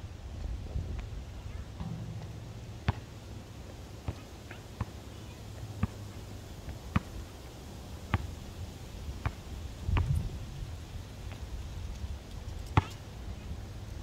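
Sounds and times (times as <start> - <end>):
low background rumble: 0.9 - 7.4
basketball bouncing on concrete: 1.8 - 3.2.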